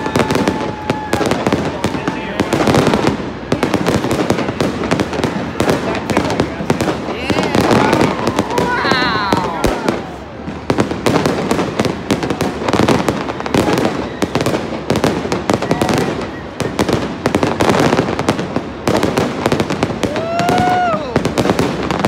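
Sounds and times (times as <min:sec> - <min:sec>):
fireworks bangs and crackles: 0:00.0 - 0:22.0.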